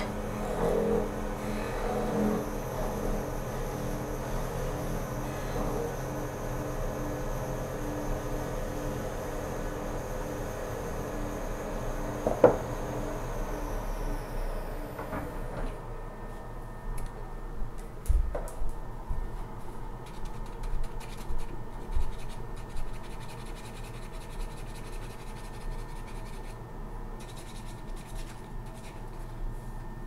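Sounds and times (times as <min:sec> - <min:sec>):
wood lathe whine spinning down: 0:00.0 - 0:16.5
irregular scratching: 0:20.0 - 0:26.6, 0:27.2 - 0:29.4.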